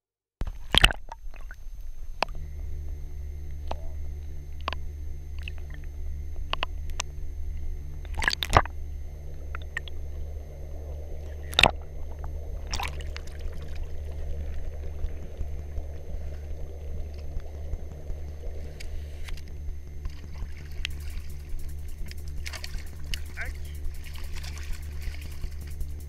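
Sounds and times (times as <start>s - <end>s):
boat engine running: 1.3s - 26.0s
water splashing along hull: 3.6s - 26.0s.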